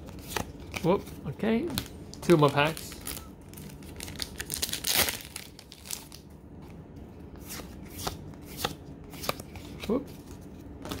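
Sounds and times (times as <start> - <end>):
foil pack tearing and crinkling: 2.5 - 6.2.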